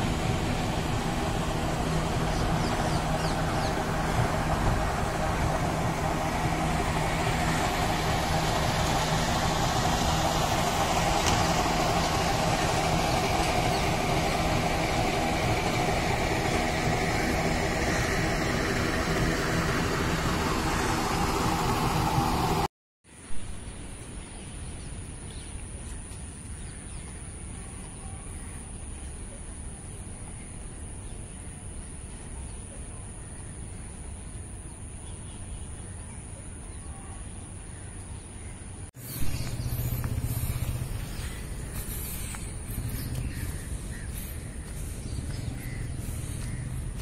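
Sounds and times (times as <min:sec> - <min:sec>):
high-pitched whine: 0:00.0 - 0:22.7, 0:39.0 - 0:47.0
road traffic: 0:00.0 - 0:47.0.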